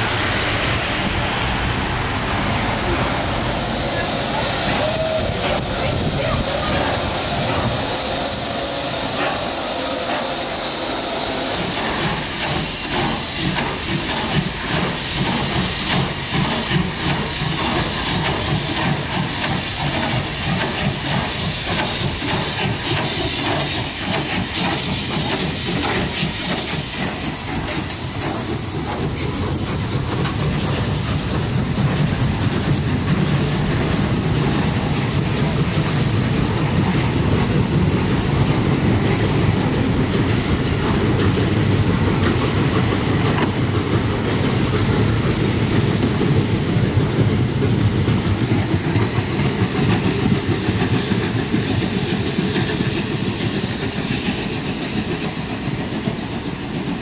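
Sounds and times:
hissing steam: 0.0s - 57.0s
steam locomotive running: 0.0s - 57.0s.

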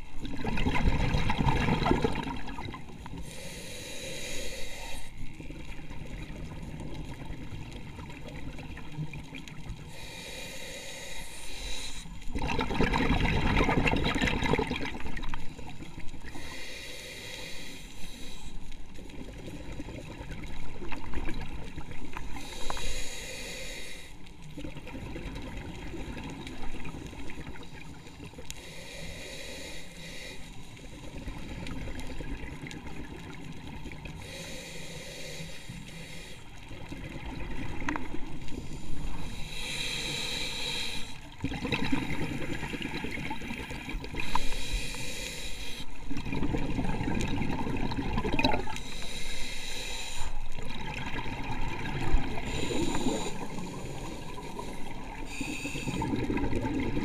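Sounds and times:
exhaled air bubbling: 0.0s - 10.1s, 11.5s - 16.4s, 36.5s - 57.0s
regulator inhale hiss: 3.0s - 5.6s, 9.8s - 12.3s, 15.4s - 19.5s, 22.2s - 24.5s, 27.4s - 32.1s, 34.1s - 36.8s, 38.3s - 41.4s, 42.3s - 46.1s, 48.7s - 50.6s, 52.0s - 56.5s.

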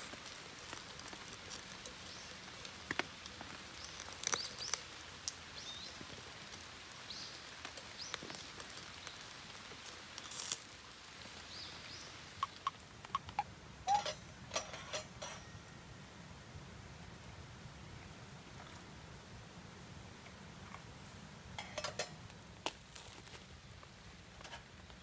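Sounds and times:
sharp pops of fire: 0.0s - 10.9s
steady outdoor hiss: 0.0s - 25.0s
wood fire crackling: 0.0s - 25.0s.

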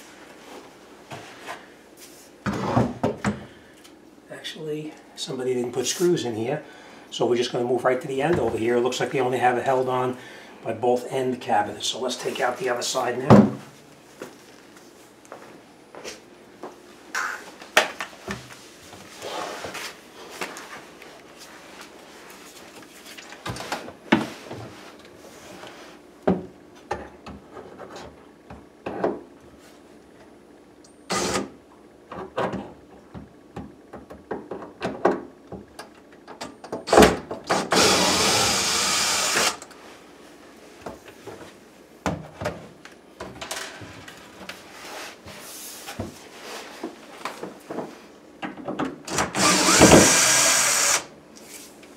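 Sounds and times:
cordless drill running: 31.1s - 31.5s, 37.5s - 39.6s, 49.2s - 51.1s.

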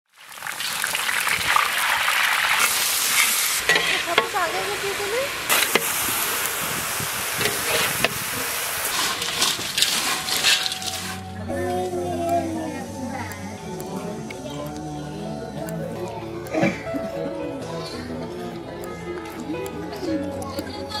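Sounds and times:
hot oil sizzling: 0.1s - 14.6s
metal spoon scraping a pan: 2.6s - 4.7s, 5.5s - 6.3s, 7.3s - 11.4s.

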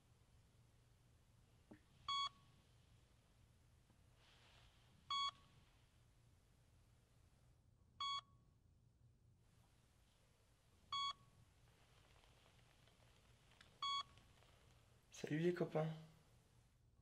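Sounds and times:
faint low hum: 0.0s - 17.0s
heart monitor beeping: 2.0s - 2.6s, 5.1s - 5.5s, 8.0s - 8.4s, 10.9s - 11.4s, 13.6s - 14.6s.

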